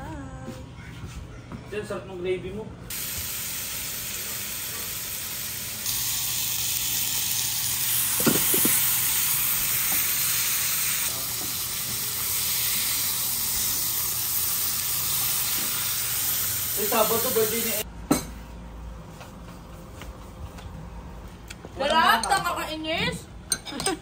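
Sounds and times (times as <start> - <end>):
steak sizzling in a frying pan: 2.9 - 17.8.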